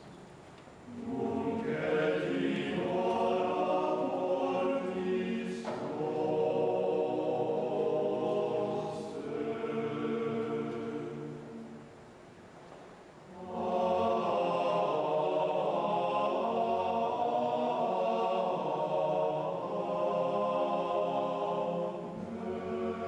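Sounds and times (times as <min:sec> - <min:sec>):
men's choir chanting: 0:00.9 - 0:11.8, 0:13.3 - 0:23.0.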